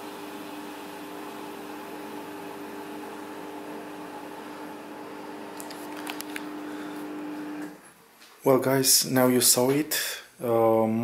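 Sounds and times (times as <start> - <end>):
washing machine humming: 0.0 - 5.6, 6.2 - 7.8.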